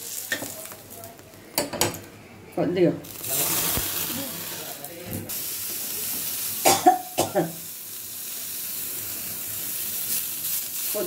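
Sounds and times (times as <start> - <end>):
leaves sizzling in a pan: 0.0 - 1.4, 3.0 - 11.0
person coughing: 6.6 - 7.6.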